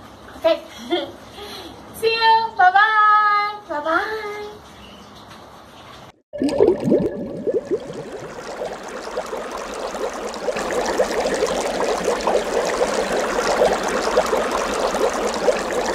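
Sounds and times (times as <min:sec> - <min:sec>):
underwater air bubbles gurgling: 0:06.4 - 0:15.9.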